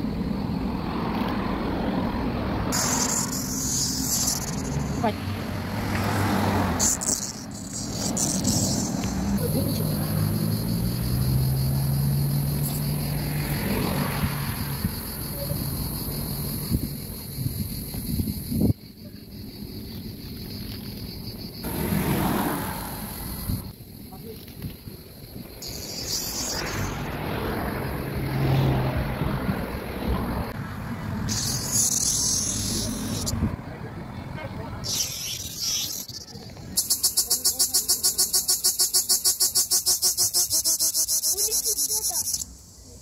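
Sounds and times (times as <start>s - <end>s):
vehicle engine humming: 0.0s - 17.1s, 21.6s - 35.2s
cicadas singing: 0.0s - 43.0s
high hiss: 2.7s - 5.1s
car driving past: 4.6s - 15.1s, 21.6s - 23.7s, 26.0s - 31.7s.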